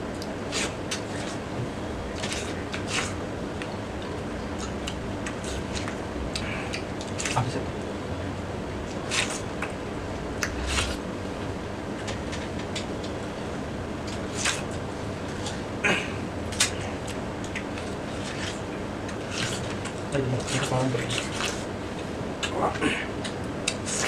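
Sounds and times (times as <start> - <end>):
steady background hum: 0.0 - 24.0
people biting and slurping watermelon: 0.5 - 3.2, 9.0 - 9.5, 10.4 - 11.0, 19.2 - 21.6.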